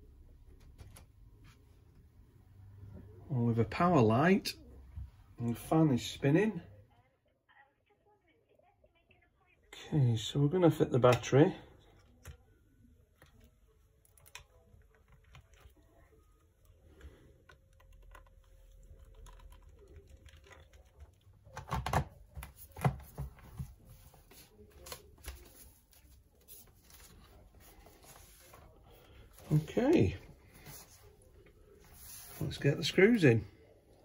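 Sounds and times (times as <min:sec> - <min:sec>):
faint handling noise: 0:11.1 - 0:34.0.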